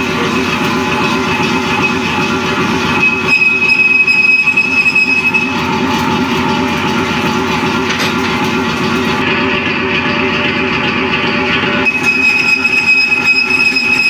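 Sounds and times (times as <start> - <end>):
lathe rumbling: 0.0 - 14.0
thin high whine: 11.9 - 14.0.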